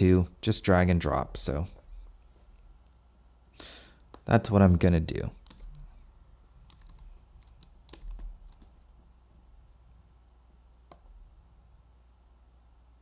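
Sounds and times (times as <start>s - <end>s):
faint room hum: 0.0s - 13.0s
keyboard and mouse clicks: 5.4s - 5.8s, 6.6s - 9.0s, 10.9s - 11.1s.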